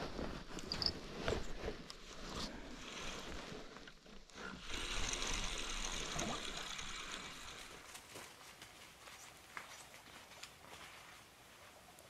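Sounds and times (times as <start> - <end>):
fishing reel whirring: 2.5 - 7.9.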